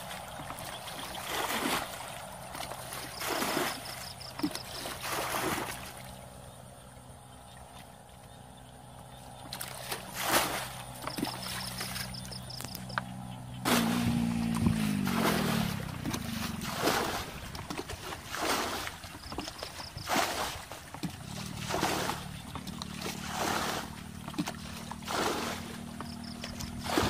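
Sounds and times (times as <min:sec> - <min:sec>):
bucket water sloshing and splashing: 0:00.0 - 0:06.3, 0:09.0 - 0:27.0
low steady hum: 0:00.0 - 0:20.0.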